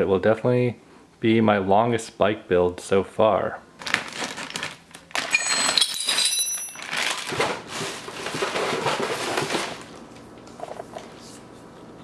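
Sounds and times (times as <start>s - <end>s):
packing material scraping: 3.8s - 4.8s, 6.8s - 9.9s
plastic bag crinkling: 3.8s - 10.0s.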